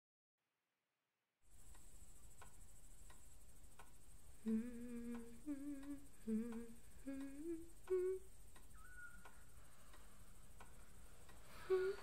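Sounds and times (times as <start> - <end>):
faint regular ticking: 1.5 - 12.0
person humming: 4.4 - 9.3, 11.5 - 12.0.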